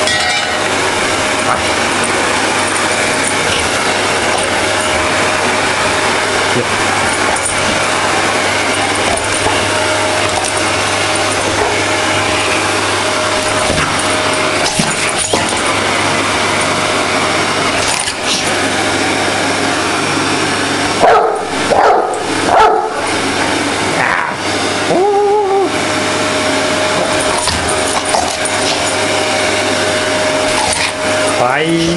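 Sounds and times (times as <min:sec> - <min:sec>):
vacuum cleaner running: 0:00.0 - 0:31.9
dog barking: 0:21.0 - 0:23.0.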